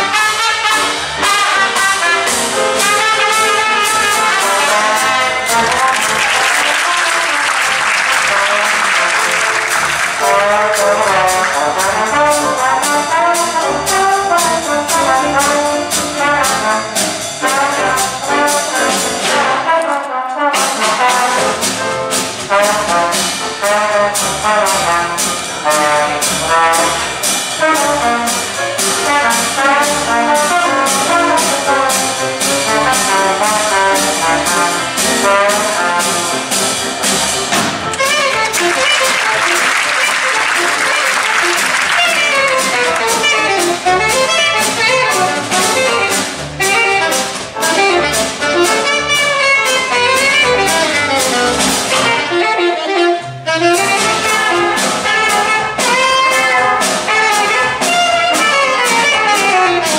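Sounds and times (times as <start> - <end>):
trad jazz band playing: 0.0 - 59.9
trombone playing: 0.0 - 59.9.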